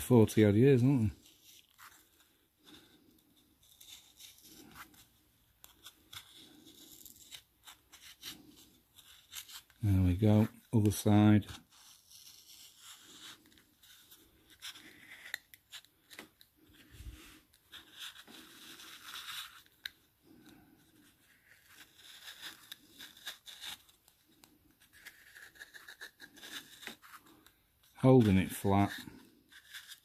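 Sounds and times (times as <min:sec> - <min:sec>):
blade scratching rubber seal: 0:21.3 - 0:24.0, 0:24.8 - 0:27.2.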